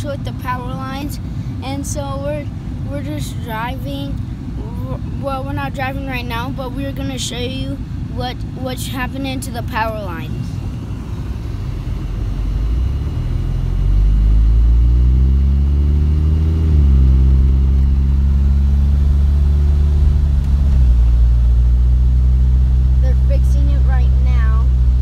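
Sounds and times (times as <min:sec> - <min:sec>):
car engine accelerating: 0:10.2 - 0:25.0.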